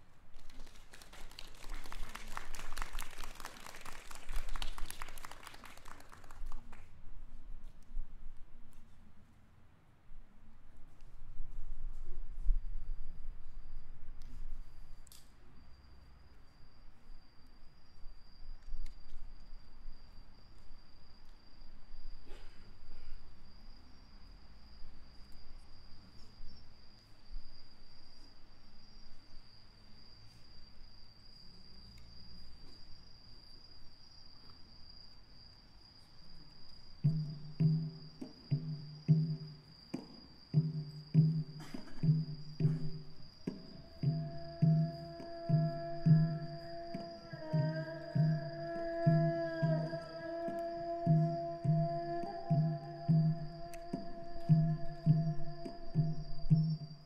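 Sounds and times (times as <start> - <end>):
audience applauding: 0.4 - 6.9
high-pitched insect trill: 12.7 - 57.0.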